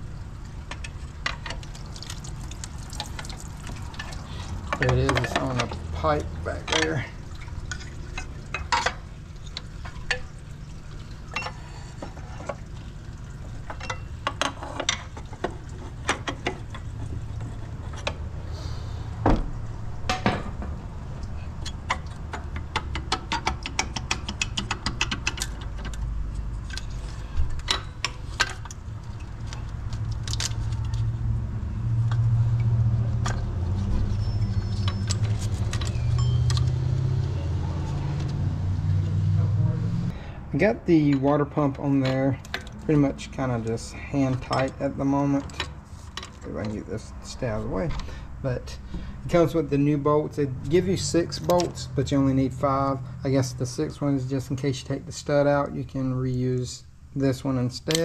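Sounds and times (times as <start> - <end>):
metal tools clinking: 34.1 - 36.7.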